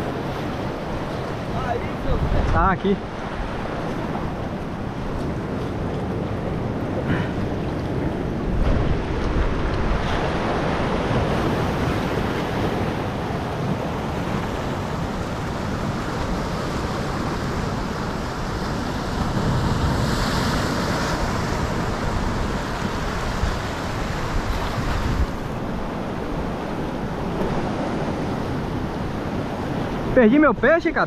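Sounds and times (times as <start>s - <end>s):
waves breaking on rocks: 0.0s - 31.0s.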